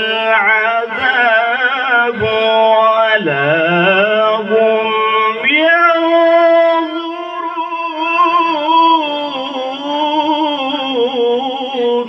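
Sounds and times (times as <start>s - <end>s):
man reciting melodically: 0.0s - 12.0s.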